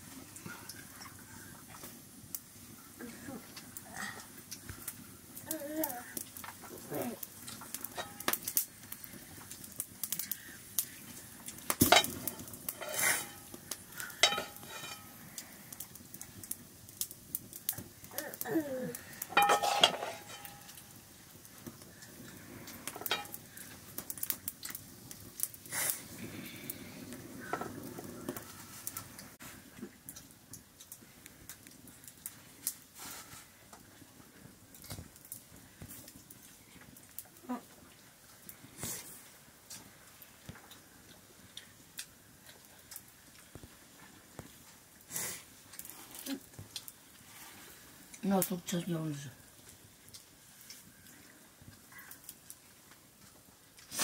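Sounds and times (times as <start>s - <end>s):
plates clinking and scraping: 7.9s - 8.3s, 11.8s - 13.5s, 14.2s - 15.2s, 19.3s - 20.8s, 23.0s - 23.4s
metal ladle against wok: 11.9s - 13.5s, 14.2s - 15.2s, 19.3s - 20.8s.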